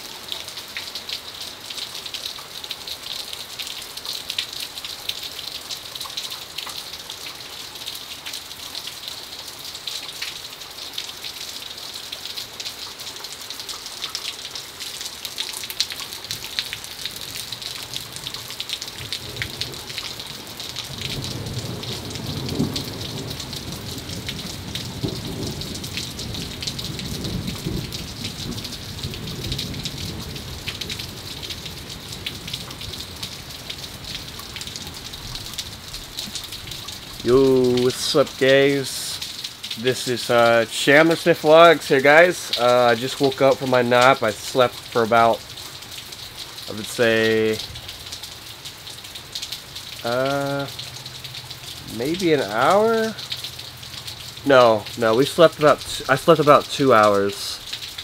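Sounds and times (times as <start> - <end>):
rain on roof and gutter: 0.0 - 58.0
raindrops clicking: 0.3 - 58.0
thunder rumbling: 20.9 - 33.2.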